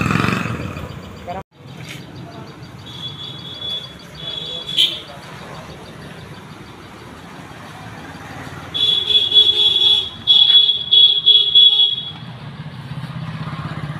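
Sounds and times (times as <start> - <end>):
motorcycle horn: 2.9 - 5.2, 8.7 - 12.2.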